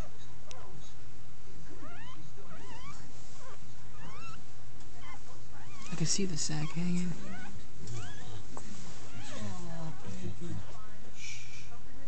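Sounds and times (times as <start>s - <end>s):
dog whimpering: 1.8s - 4.4s, 5.0s - 8.4s, 9.1s - 10.1s.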